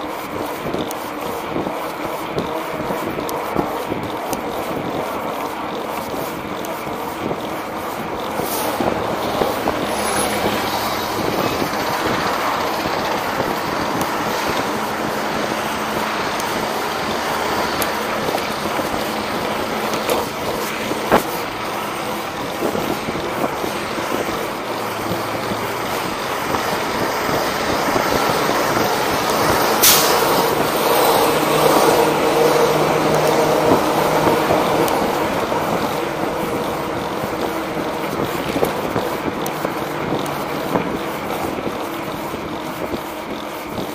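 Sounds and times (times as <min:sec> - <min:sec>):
street traffic: 0:00.0 - 0:43.9
tyre rolling over concrete: 0:00.0 - 0:43.9
wind on microphone: 0:00.0 - 0:43.9.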